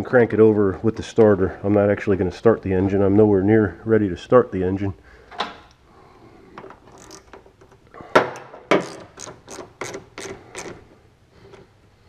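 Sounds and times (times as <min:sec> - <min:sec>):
sharp mechanical clicks and knocks: 0:06.6 - 0:10.8.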